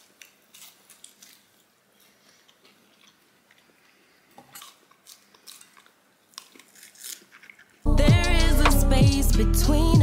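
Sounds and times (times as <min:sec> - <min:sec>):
person chewing burger: 0:00.0 - 0:07.9.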